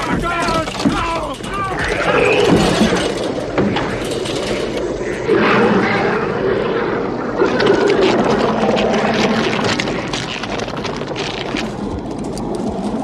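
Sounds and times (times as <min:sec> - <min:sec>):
creature growling and screeching: 0:00.0 - 0:03.1, 0:05.2 - 0:10.3
dense rough noise: 0:00.0 - 0:13.0.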